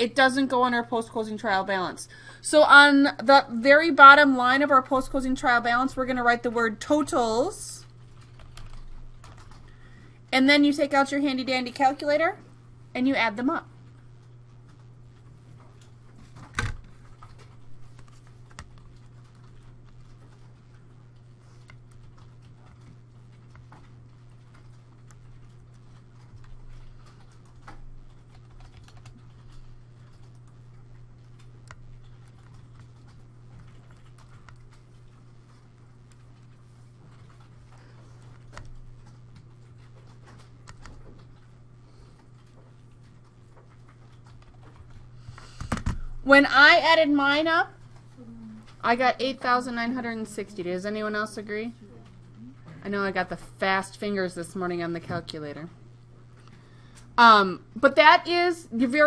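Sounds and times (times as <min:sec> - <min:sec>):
steady low hum: 0:00.0 - 0:59.0
calculator keys clicking: 0:27.6 - 0:29.5.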